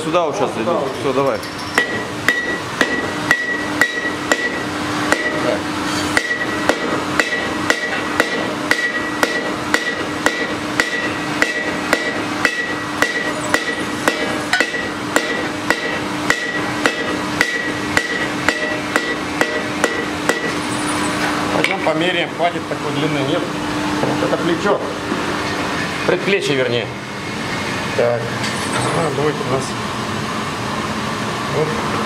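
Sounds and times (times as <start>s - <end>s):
hammer forging on anvil: 1.7s - 20.7s
anvil ringing: 1.8s - 5.5s, 6.1s - 20.6s.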